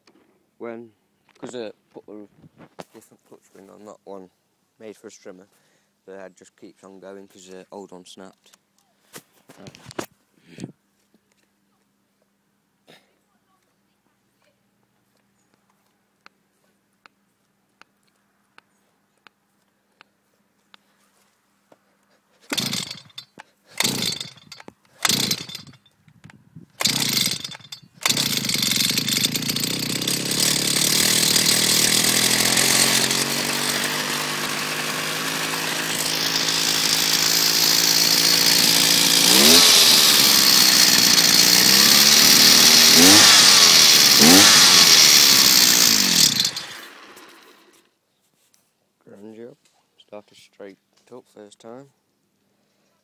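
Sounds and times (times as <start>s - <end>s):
starter cord pulls: 22.4s - 47.8s
strimmer engine running and revving: 22.5s - 23.2s, 23.8s - 25.8s, 26.8s - 47.8s.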